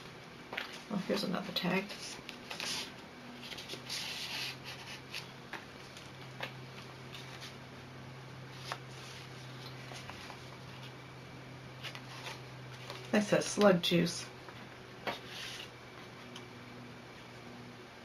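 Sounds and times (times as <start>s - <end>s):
paper rustling and sliding: 1.9s - 7.6s, 8.5s - 11.0s, 11.8s - 13.2s, 15.0s - 15.7s.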